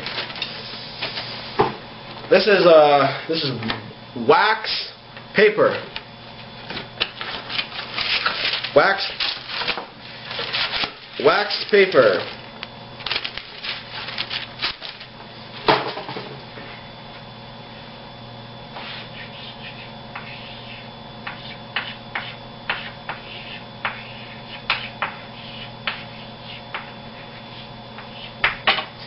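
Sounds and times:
chalk on blackboard: 18.7s - 28.6s.

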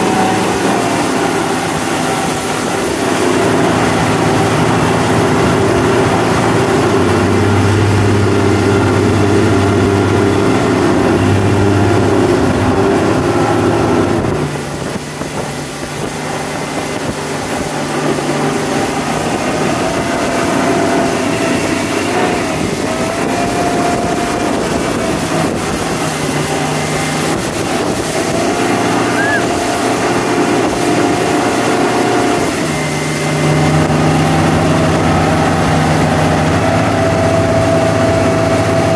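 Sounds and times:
motorboat engine running: 0.0s - 38.9s
rushing wake: 0.0s - 38.9s
wind noise: 0.0s - 38.9s.

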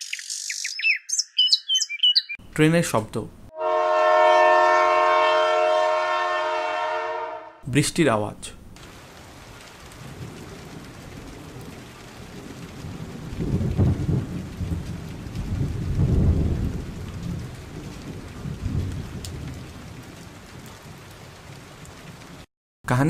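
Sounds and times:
steady rain: 8.7s - 22.5s
rolling thunder: 8.8s - 22.4s.

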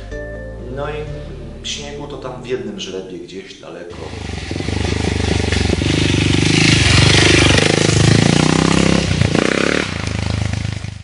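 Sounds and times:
dirt bike engine revving: 3.9s - 11.0s.

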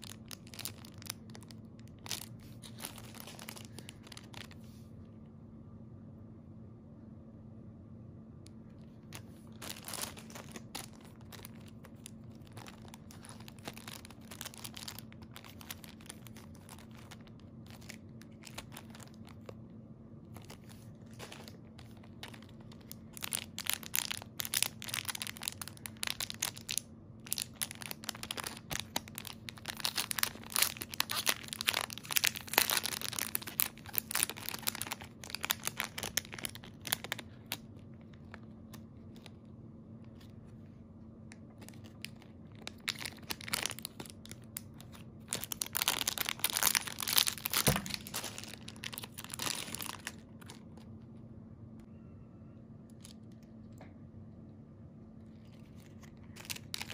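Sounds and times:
plastic bags crinkling: 0.0s - 4.6s, 9.0s - 19.6s, 20.3s - 39.4s, 41.5s - 50.8s, 55.4s - 56.9s
steady low hum: 0.0s - 56.9s.

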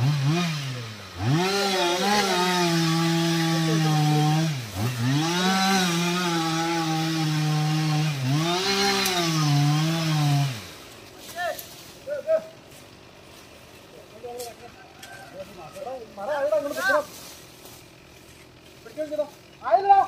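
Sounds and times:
chainsaw cutting wood: 0.0s - 14.6s.

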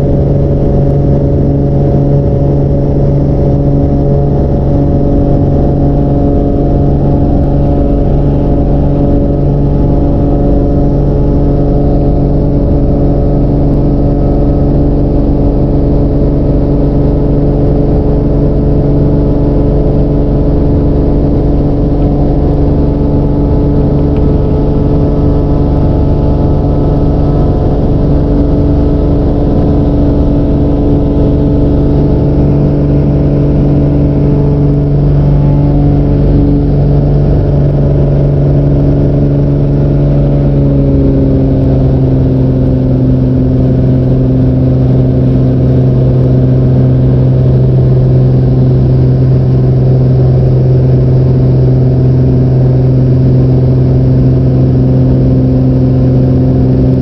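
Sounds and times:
rushing air: 0.0s - 41.6s
propeller plane engine: 0.0s - 57.0s.

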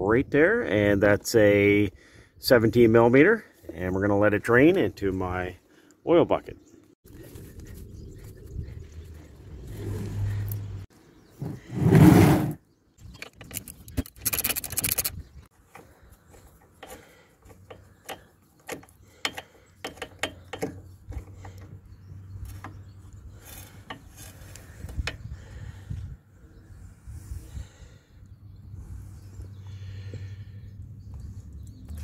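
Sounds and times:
metal taps: 16.8s - 21.7s.

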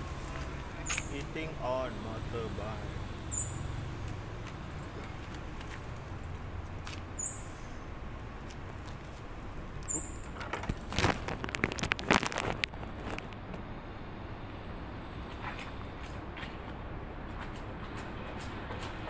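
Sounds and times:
low outdoor hum: 0.0s - 19.0s
microphone handling clicks and knocks: 10.3s - 13.6s.

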